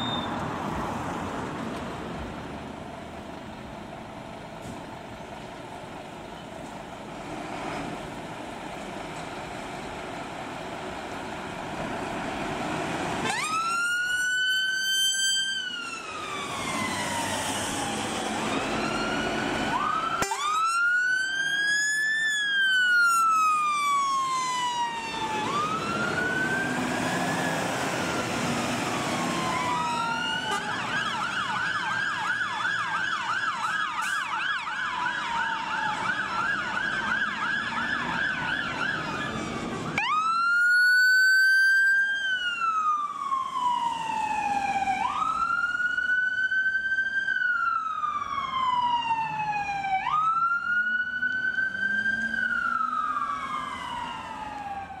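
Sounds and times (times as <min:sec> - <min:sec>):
emergency vehicle sirens: 0:00.0 - 0:55.0
vehicle engine noise: 0:00.0 - 0:55.0.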